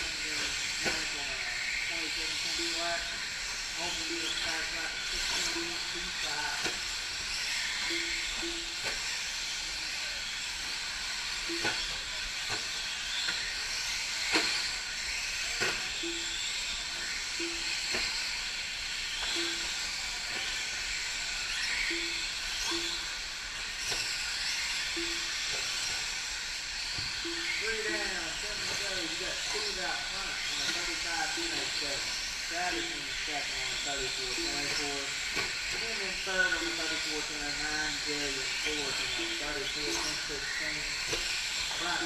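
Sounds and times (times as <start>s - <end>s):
rc truck motors hissing: 0.0s - 42.0s
short low beeps: 4.0s - 6.8s, 7.8s - 9.0s, 11.5s - 12.1s, 15.9s - 18.2s, 19.2s - 20.7s, 21.8s - 23.2s, 24.9s - 25.6s, 27.2s - 35.9s, 36.5s - 40.9s.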